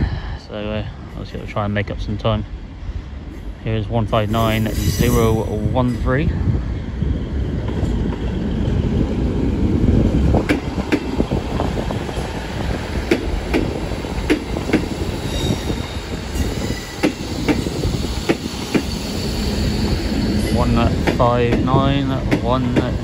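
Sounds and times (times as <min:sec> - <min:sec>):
train engine and wheel rumble: 0:00.0 - 0:23.0
high wheel squeal: 0:04.4 - 0:05.4, 0:15.2 - 0:18.2.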